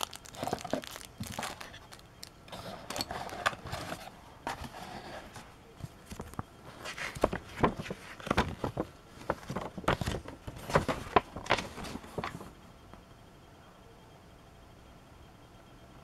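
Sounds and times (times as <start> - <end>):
paper leaflet rustling: 0.0 - 12.5.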